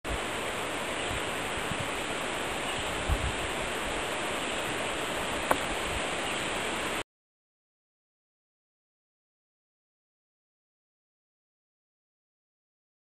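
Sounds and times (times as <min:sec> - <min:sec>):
hiss-like rushing noise: 0:00.1 - 0:07.0.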